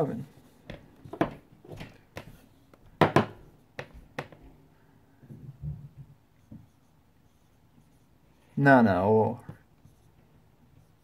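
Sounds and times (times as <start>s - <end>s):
marker drawing on whiteboard: 0.0s - 4.5s, 6.2s - 11.0s
marker clicks and taps: 0.6s - 4.5s.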